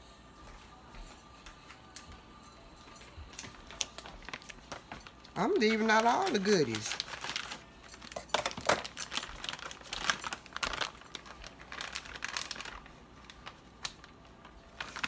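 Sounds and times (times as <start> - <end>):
plastic bag crinkling: 3.3 - 15.0.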